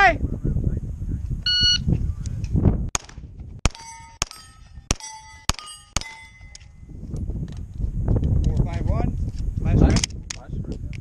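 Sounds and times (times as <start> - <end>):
pistol shots: 2.9 - 6.7
steel plate ringing ping: 3.7 - 6.9.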